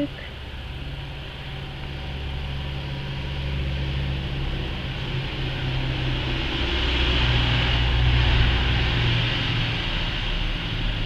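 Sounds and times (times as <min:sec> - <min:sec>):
low hum with hiss: 0:00.0 - 0:07.1.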